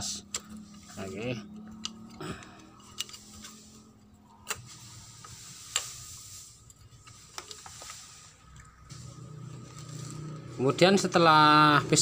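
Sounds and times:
light metallic clicks and taps: 0:01.6 - 0:02.2.

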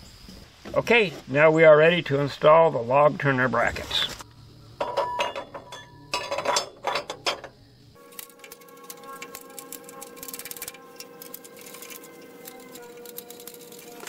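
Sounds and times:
steel bracket clanking on rail: 0:04.8 - 0:07.6.

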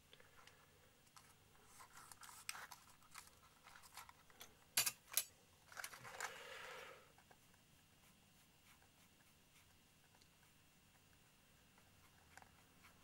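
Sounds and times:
tape crinkling and scratching: 0:01.1 - 0:04.5, 0:05.6 - 0:06.4.

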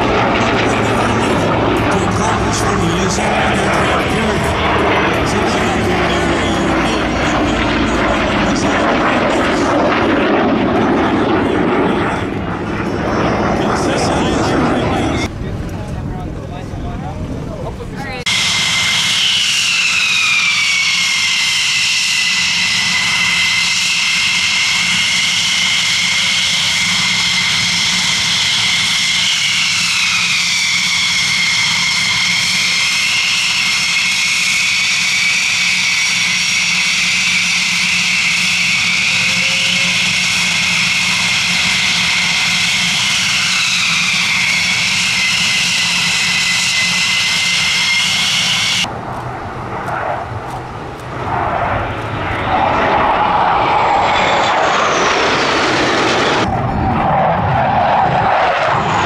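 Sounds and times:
jet engine turbine whine: 0:00.0 - 0:59.0.

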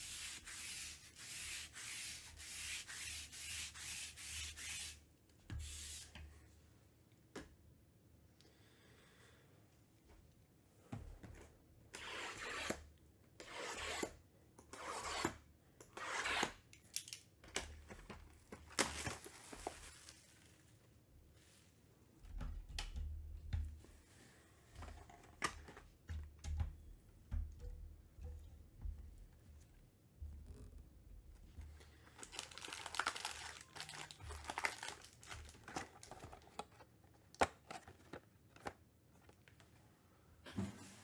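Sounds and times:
shrink wrap tearing and crinkling: 0:18.6 - 0:20.4, 0:32.1 - 0:36.6.

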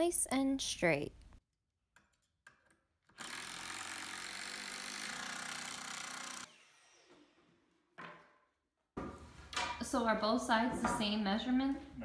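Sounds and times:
cordless drill driving screw: 0:03.1 - 0:07.1.

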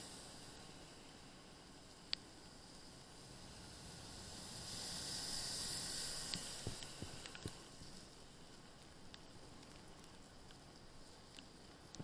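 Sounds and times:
tyres hissing on wet asphalt: 0:00.0 - 0:08.3.

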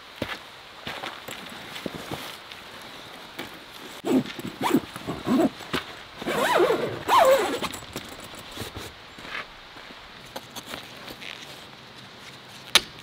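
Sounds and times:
fabric rasping and squeaking: 0:04.1 - 0:05.5, 0:06.2 - 0:08.8.

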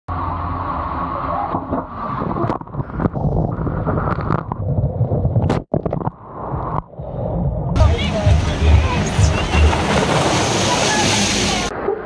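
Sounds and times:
water rushing down slide: 0:07.8 - 0:12.0.

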